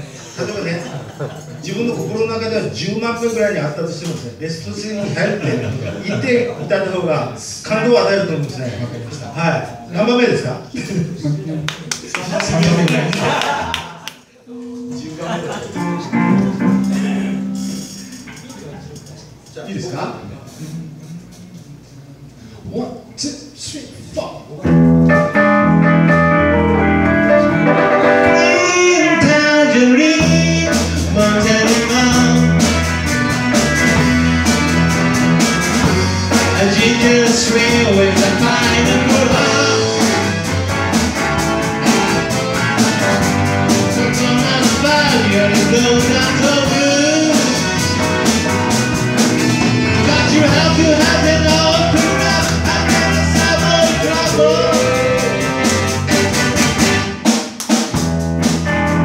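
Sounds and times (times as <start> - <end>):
live rock band playing: 14.5 - 18.5, 24.6 - 59.0
man singing lead: 28.2 - 32.8, 35.8 - 40.6, 43.7 - 48.2, 49.8 - 55.9.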